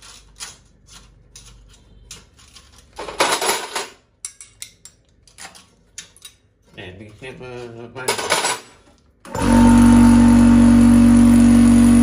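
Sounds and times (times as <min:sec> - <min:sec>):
small metal parts clinking: 0:00.0 - 0:06.4.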